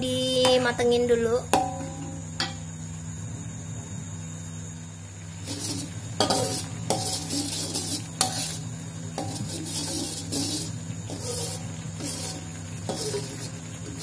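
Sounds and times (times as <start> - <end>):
paste sizzling and bubbling: 4.8 - 14.0
metal spatula scraping wok: 5.4 - 14.0.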